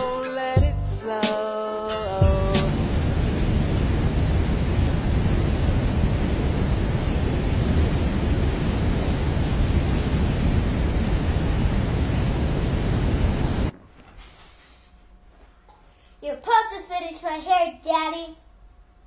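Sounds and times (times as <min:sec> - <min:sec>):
steady low rushing noise: 0:02.2 - 0:13.7.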